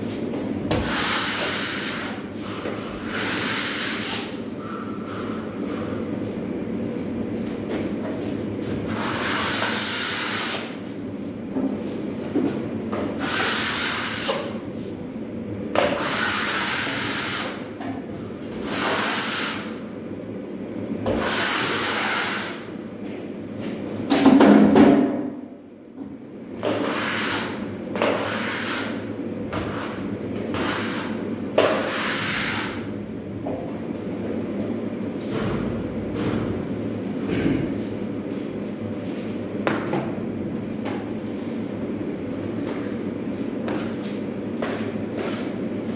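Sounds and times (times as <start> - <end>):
steady low hum: 0.0 - 16.8, 19.6 - 45.9
trowel scraping drywall: 0.7 - 4.4, 8.9 - 10.7, 21.1 - 22.6, 26.6 - 29.0, 29.6 - 32.8.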